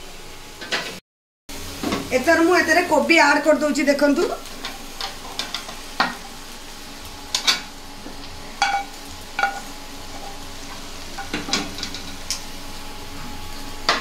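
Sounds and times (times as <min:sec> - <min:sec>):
low sizzle of frying: 0:00.0 - 0:14.0
metal spatula knocking on pans: 0:08.6 - 0:09.7, 0:11.2 - 0:12.1.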